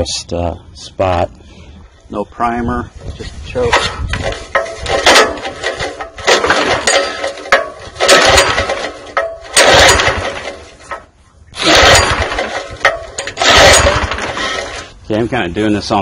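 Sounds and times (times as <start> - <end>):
pull-starter rope whirring: 3.6 - 15.0.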